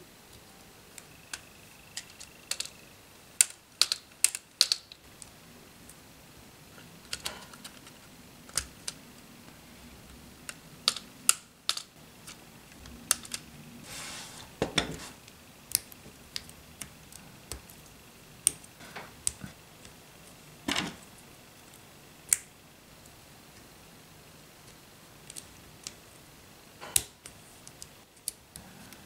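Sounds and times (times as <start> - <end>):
plastic pieces clicking together: 1.3 - 2.8, 3.4 - 5.0, 10.5 - 12.4.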